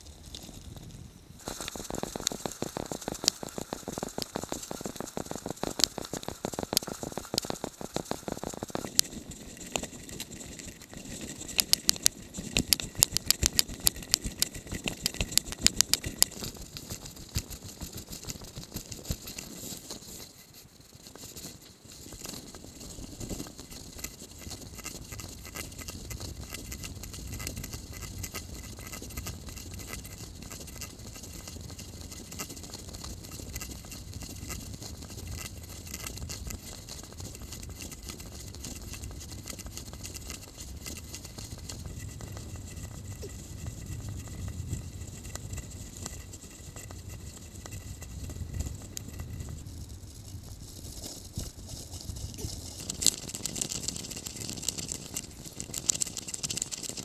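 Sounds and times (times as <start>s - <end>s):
bicycle rattling and clicking: 1.4s - 20.5s, 21.2s - 57.0s.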